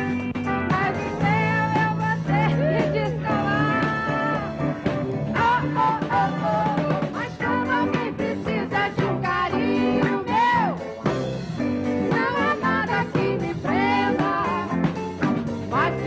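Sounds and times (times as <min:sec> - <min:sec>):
instrumental backing: 0:00.0 - 0:16.0
women singing a duet: 0:00.7 - 0:04.8, 0:05.4 - 0:10.9, 0:12.0 - 0:15.0, 0:15.7 - 0:16.0.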